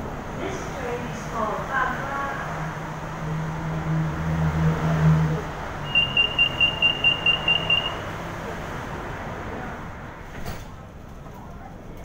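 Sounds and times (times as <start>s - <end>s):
short high electronic beeps: 5.9s - 8.0s.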